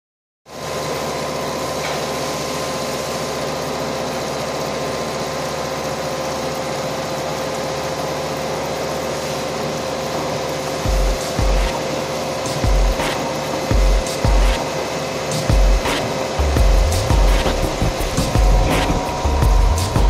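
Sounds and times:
milling machine cutting aluminium: 5.8s - 20.0s.

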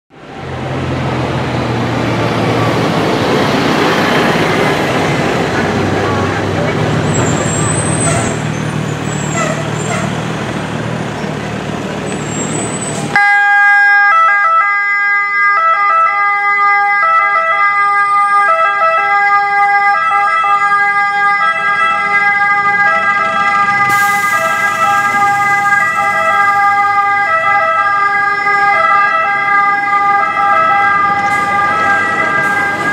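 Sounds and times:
vehicle engine: 0.1s - 13.2s, 20.7s - 32.9s
traffic noise: 0.1s - 32.9s
two-tone siren: 13.1s - 32.9s.

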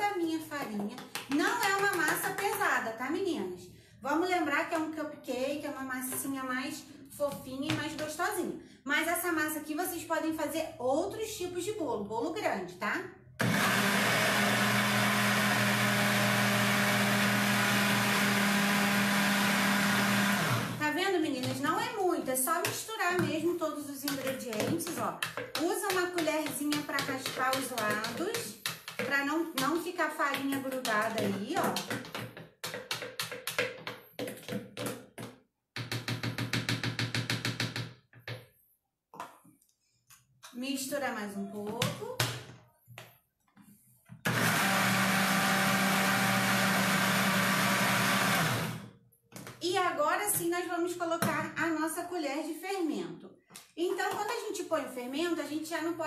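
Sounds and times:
blender motor running: 13.4s - 20.8s, 44.2s - 48.9s.

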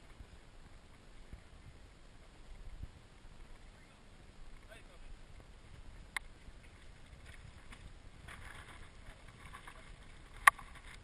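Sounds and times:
low wind rumble on microphone: 0.0s - 11.0s
faint scrapes and rattles: 2.4s - 11.0s.

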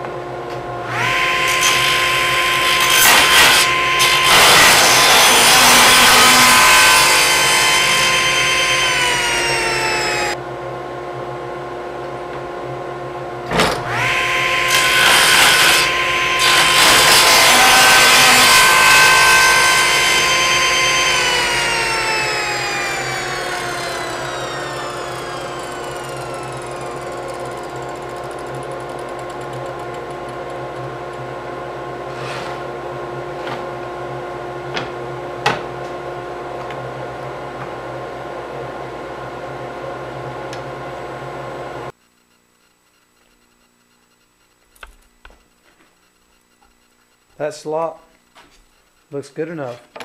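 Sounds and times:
saw motor whining: 0.8s - 10.4s, 13.5s - 31.3s
table saw blade cutting wood: 0.9s - 10.4s, 13.5s - 30.6s, 32.0s - 32.7s.

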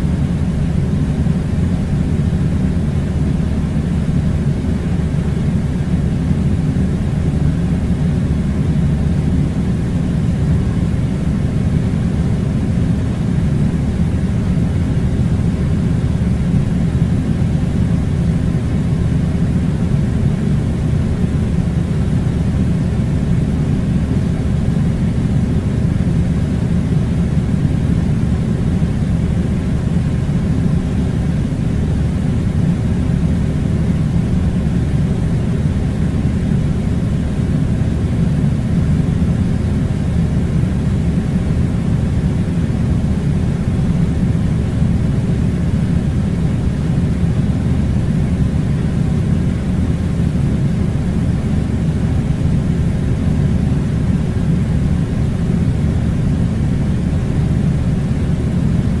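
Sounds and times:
air conditioning rumble: 0.0s - 59.0s.

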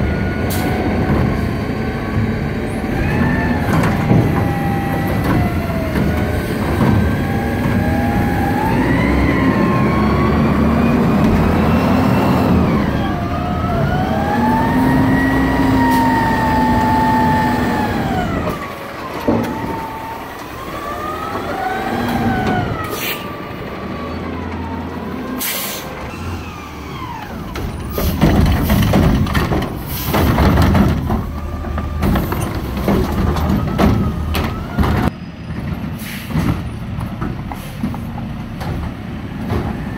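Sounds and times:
truck engine revving: 0.0s - 35.1s
trash cart clattering and banging: 2.9s - 9.1s, 15.5s - 20.5s, 27.0s - 39.9s.

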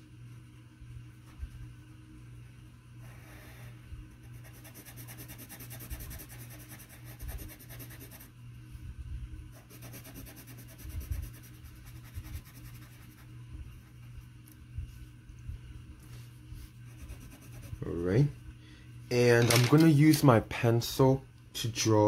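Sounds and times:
steady low hum: 0.0s - 22.0s
pencil scratching on paper: 3.1s - 8.3s, 9.6s - 13.3s, 16.8s - 17.9s.

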